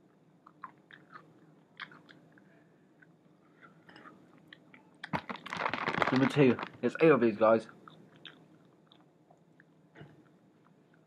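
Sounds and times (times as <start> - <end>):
person chewing chicken wing: 0.4 - 6.1.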